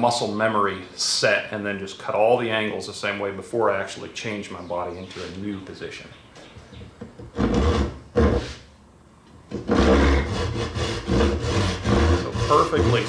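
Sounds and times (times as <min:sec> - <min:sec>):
hand saw cutting wood: 0:07.3 - 0:08.6, 0:09.5 - 0:13.0.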